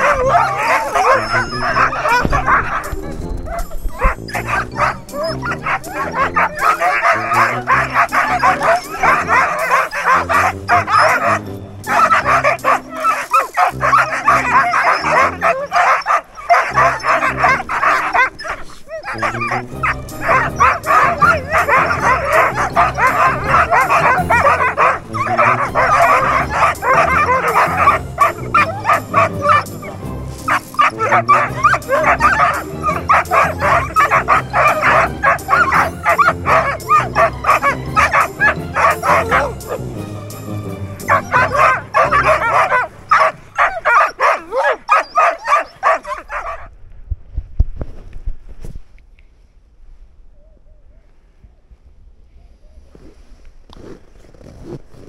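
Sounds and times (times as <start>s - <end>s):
dogs barking yipping and whining: 0.0s - 46.7s
low thumps: 1.7s - 5.9s.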